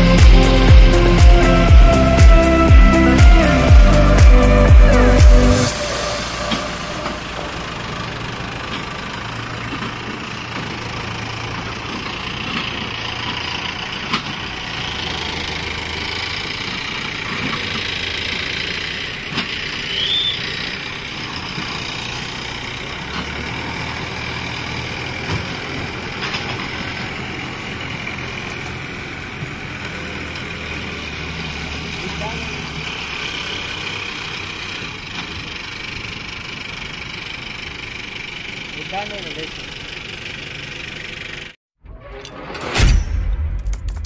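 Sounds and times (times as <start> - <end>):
tractor diesel engine running: 0.0 - 41.6
short high chirp: 5.2 - 8.6, 19.8 - 20.5.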